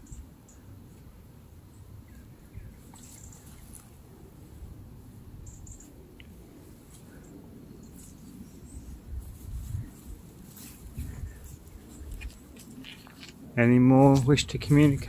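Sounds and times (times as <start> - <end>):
footsteps in grass: 2.8 - 4.1, 7.8 - 15.0
camera handling rumble: 11.9 - 13.5.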